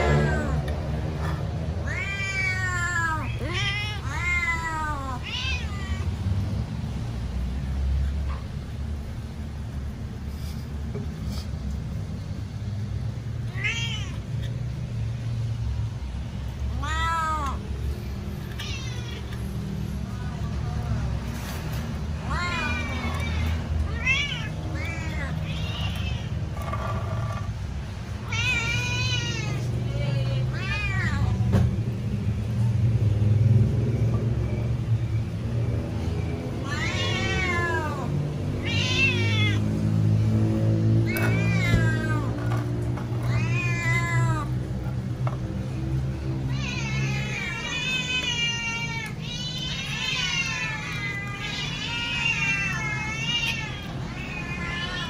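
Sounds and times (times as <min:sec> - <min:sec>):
cat meowing: 0:01.8 - 0:06.1, 0:13.5 - 0:14.5, 0:16.7 - 0:17.8, 0:18.4 - 0:19.6, 0:22.2 - 0:27.5, 0:28.2 - 0:31.4, 0:36.6 - 0:39.8, 0:41.0 - 0:44.7, 0:46.4 - 0:55.0.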